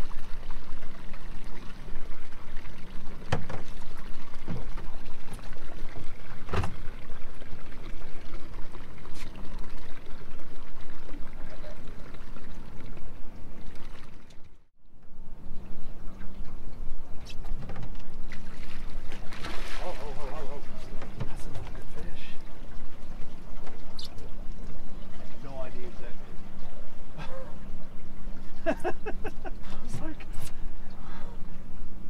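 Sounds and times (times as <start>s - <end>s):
water splashing against boat hull: 0.0s - 14.4s, 16.1s - 26.8s
low hum: 0.0s - 32.0s.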